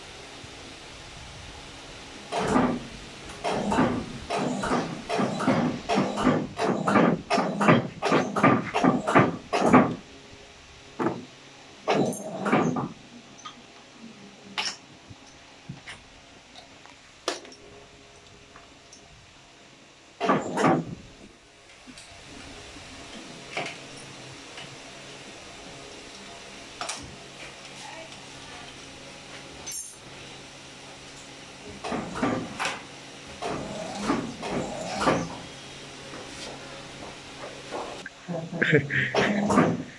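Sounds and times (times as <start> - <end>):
knocks against rollers: 2.3 - 10.0, 31.8 - 32.8.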